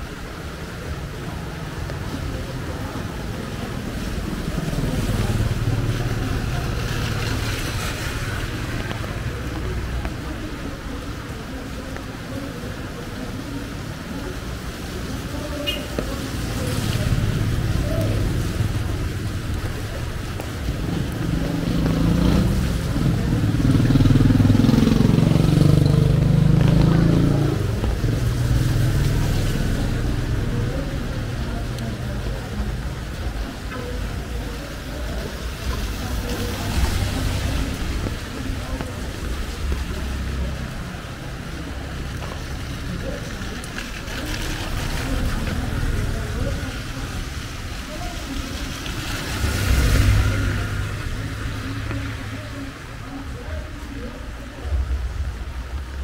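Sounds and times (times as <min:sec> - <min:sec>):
rain hissing on street: 0:00.0 - 0:56.0
vehicle engine passing by: 0:16.0 - 0:32.4, 0:34.9 - 0:53.6.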